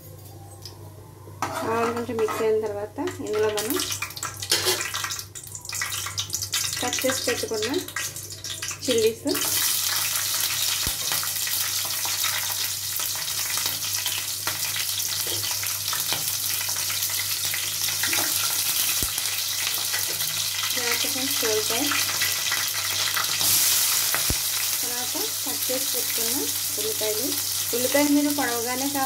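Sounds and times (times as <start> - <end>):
spices sizzling in hot oil: 1.4 - 29.0.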